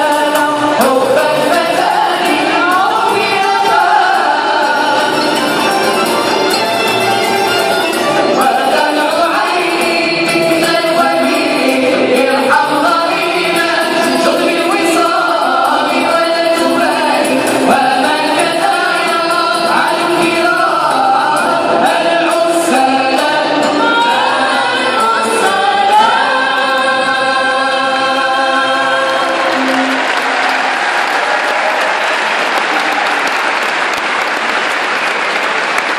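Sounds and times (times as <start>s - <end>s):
chorus singing in unison: 0.0s - 32.4s
bowed strings: 1.4s - 18.9s
applause: 29.1s - 35.9s.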